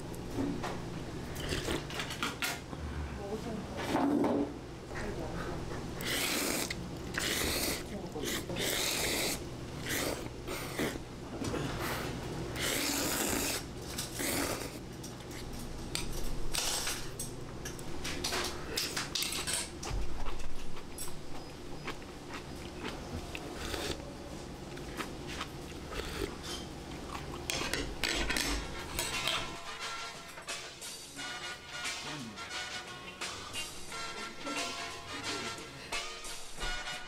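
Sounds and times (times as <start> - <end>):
dishes and cutlery clinking: 1.3 - 2.7, 15.0 - 21.5, 27.4 - 32.1.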